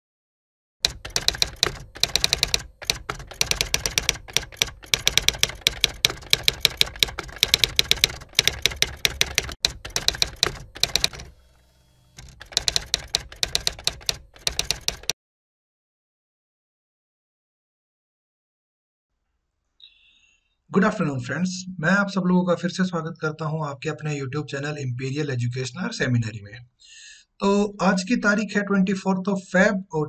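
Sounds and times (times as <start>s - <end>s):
typewriter key clicks: 0.8s - 11.3s, 12.2s - 15.1s.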